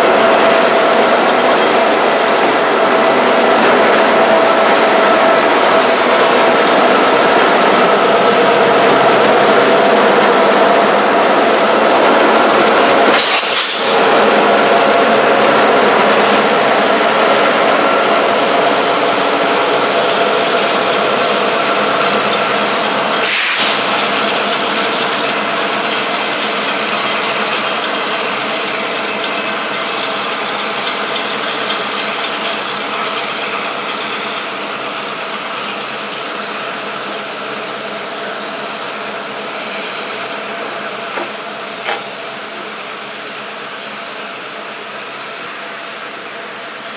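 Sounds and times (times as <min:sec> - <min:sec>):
diesel locomotives running: 0:00.0 - 0:46.9
burst of hiss: 0:13.1 - 0:14.0, 0:23.2 - 0:23.8.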